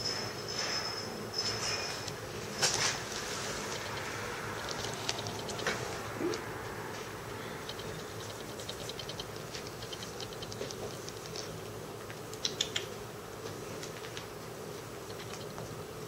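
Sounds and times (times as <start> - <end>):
low room hum: 0.0 - 16.0
kitten claws ticking on denim: 3.0 - 6.5, 7.2 - 12.9.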